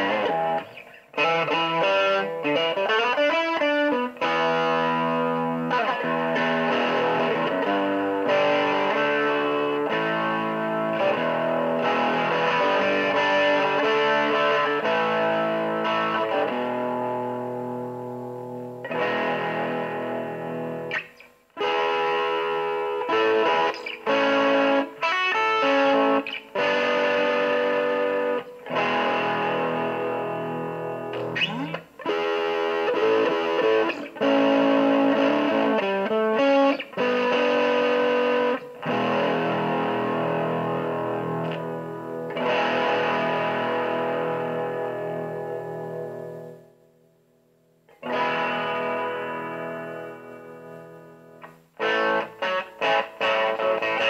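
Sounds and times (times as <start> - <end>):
distorted electric guitar chords: 0.0 - 54.0.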